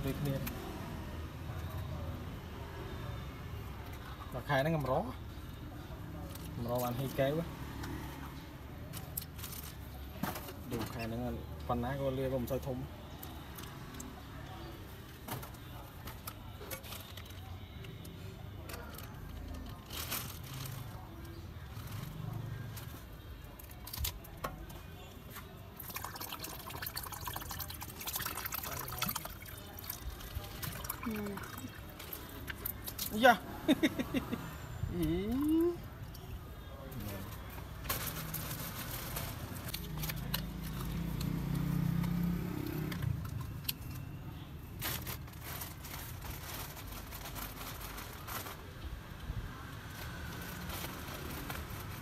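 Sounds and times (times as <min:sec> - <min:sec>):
water pouring into plastic cup: 0:25.8 - 0:32.7
vehicle engine rumble passing: 0:38.1 - 0:43.6.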